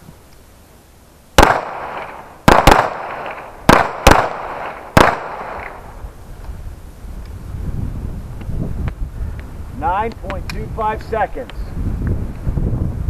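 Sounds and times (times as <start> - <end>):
pistol shots with echo: 1.4 - 5.8.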